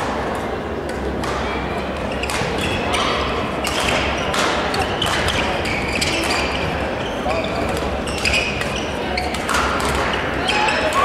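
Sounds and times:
racket hitting shuttlecock: 0.0s - 6.6s, 9.3s - 10.2s.

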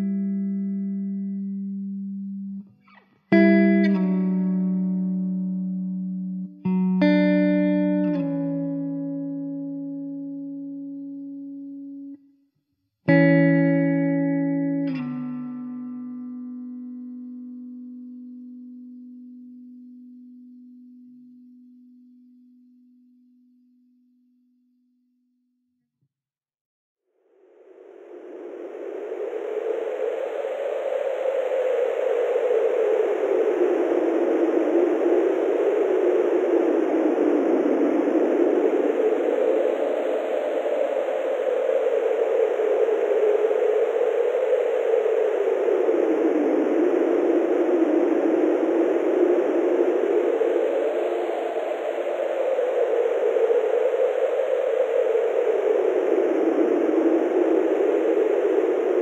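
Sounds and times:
rushing noise with wavering sweep: 27.2s - 59.0s.

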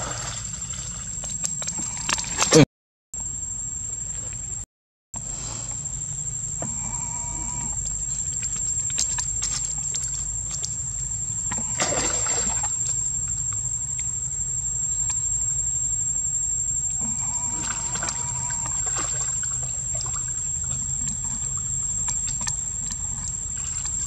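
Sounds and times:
water splashing: 0.0s - 2.6s, 8.1s - 13.0s, 17.4s - 24.0s.

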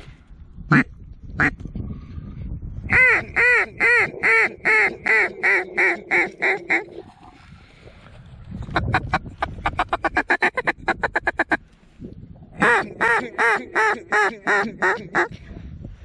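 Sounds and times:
duck call quacks: 2.9s - 6.9s, 8.8s - 11.6s, 12.6s - 15.4s.

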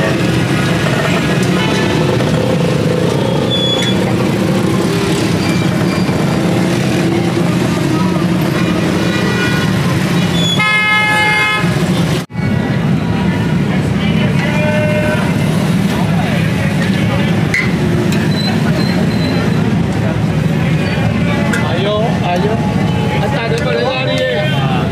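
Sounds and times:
busy street background: 0.0s - 24.9s
vehicle horn honking: 8.4s - 11.9s.

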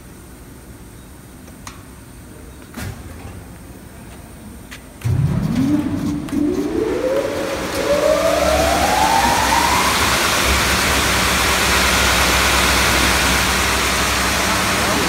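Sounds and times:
belt sander motors whining: 5.6s - 15.0s.

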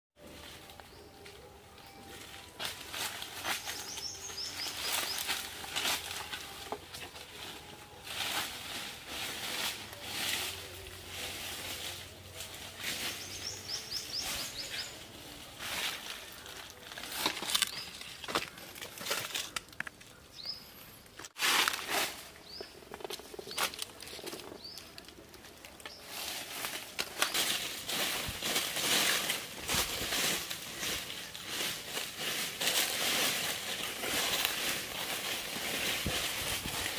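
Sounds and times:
dry leaves and twigs crackling: 0.2s - 36.9s
bird chirping: 3.4s - 6.8s, 13.0s - 18.7s.

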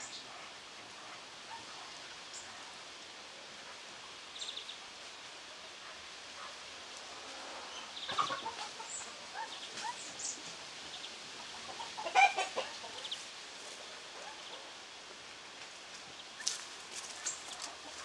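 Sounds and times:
chickens clucking: 7.2s - 14.7s, 16.4s - 18.0s.

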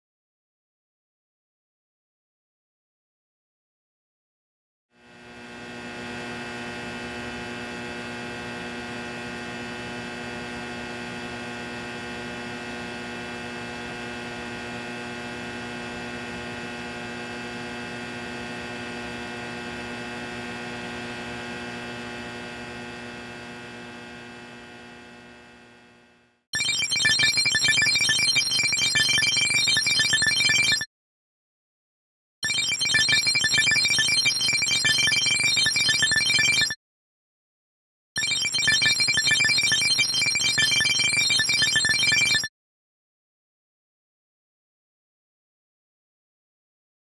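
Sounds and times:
electronic drone of held tones: 5.0s - 30.9s, 32.4s - 36.8s, 38.2s - 42.5s.

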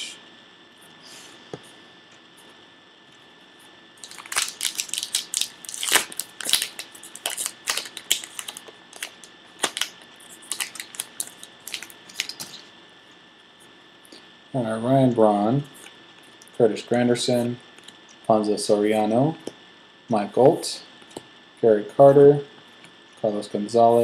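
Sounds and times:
wrapper crackling and rustling: 4.0s - 12.7s.

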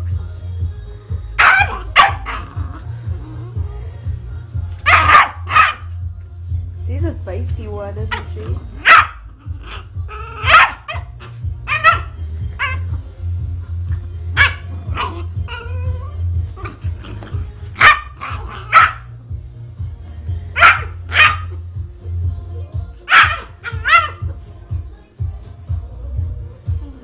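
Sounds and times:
steady low hum: 0.0s - 27.0s
puppy yapping barks: 1.4s - 2.6s, 4.8s - 5.9s, 8.1s - 12.8s, 14.4s - 15.7s, 17.8s - 19.1s, 20.6s - 21.6s, 23.1s - 24.3s.

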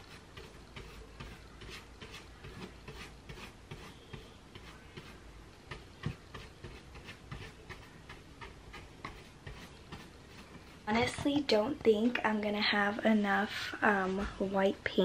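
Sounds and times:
paintbrush scratching cardboard: 0.0s - 12.1s, 12.8s - 14.6s.

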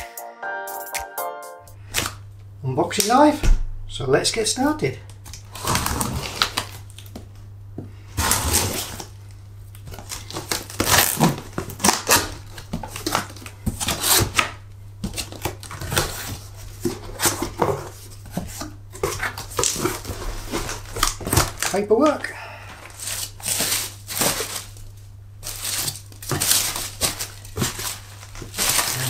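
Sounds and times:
cardboard flaps rustling: 9.8s - 21.8s, 22.9s - 29.0s
knife slitting packing tape: 10.0s - 16.4s, 23.0s - 24.8s, 25.4s - 29.0s.

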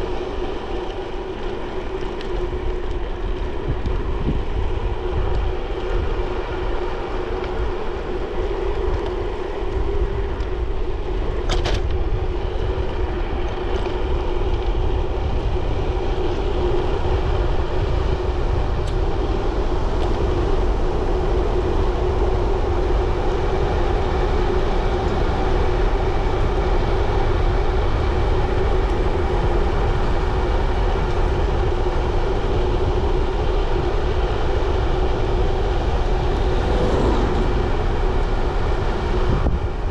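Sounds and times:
bicycle tyres rolling: 0.0s - 39.9s
wind: 0.0s - 39.9s.

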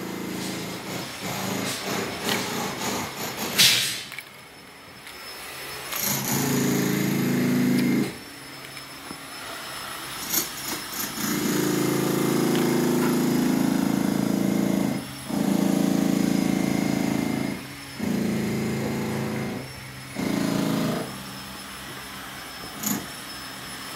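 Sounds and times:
power tool running: 0.0s - 4.3s, 5.0s - 23.9s.

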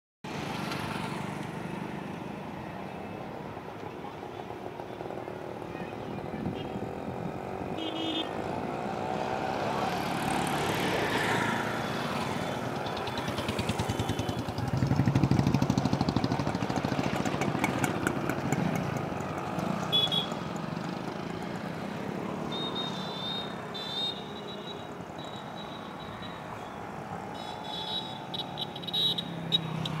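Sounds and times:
street traffic engines: 0.2s - 30.0s
short high-pitched beeps: 22.5s - 26.4s.

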